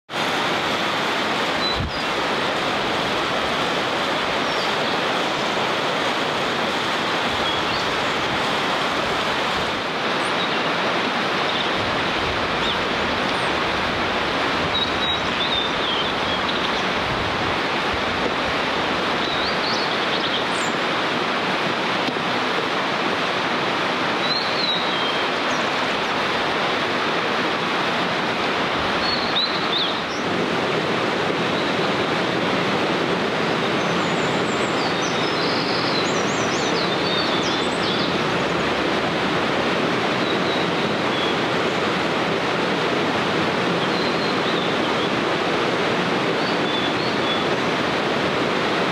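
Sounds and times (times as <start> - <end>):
rushing water: 0.0 - 48.9
bird whistling song phrases: 1.6 - 2.1, 7.4 - 7.9, 14.7 - 16.8, 24.2 - 25.6, 29.0 - 30.2, 33.8 - 38.1, 43.8 - 45.1, 46.4 - 47.4.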